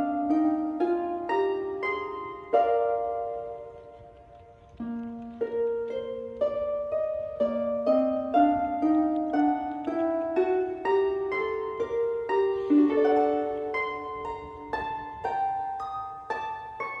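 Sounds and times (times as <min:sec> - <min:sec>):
plucked string melody: 0:00.0 - 0:17.0.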